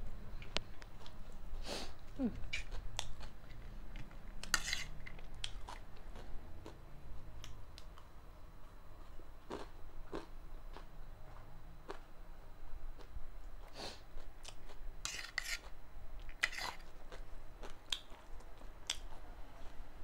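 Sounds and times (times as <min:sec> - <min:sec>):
crunchy chewing: 0:02.1 - 0:08.1, 0:09.0 - 0:10.9, 0:13.0 - 0:19.8
metal spoon scraping a plate: 0:04.4 - 0:05.2, 0:15.0 - 0:15.7, 0:16.4 - 0:16.9.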